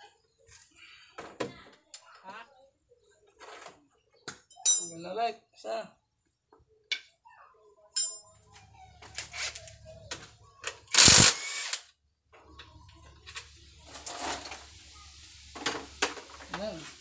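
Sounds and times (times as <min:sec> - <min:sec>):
metal tool clicks and clinks: 0:04.5 - 0:05.0, 0:08.0 - 0:08.4
loud harsh burst: 0:11.0 - 0:11.8.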